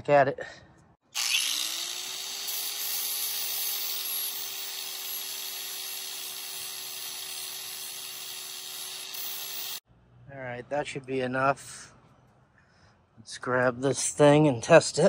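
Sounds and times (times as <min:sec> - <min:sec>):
angle grinder grinding metal: 0:01.1 - 0:09.8.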